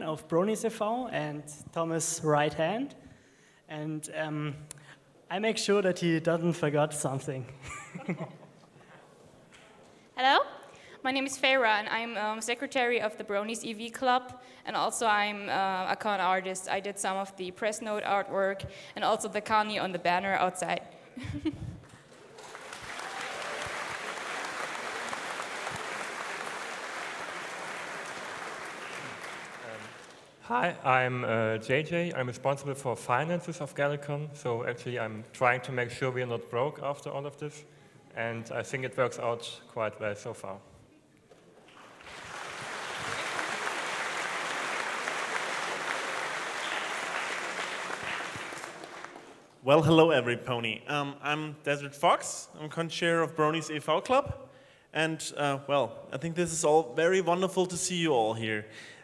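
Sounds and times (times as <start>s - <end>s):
crowd applauding: 21.9s - 30.4s, 41.6s - 49.5s.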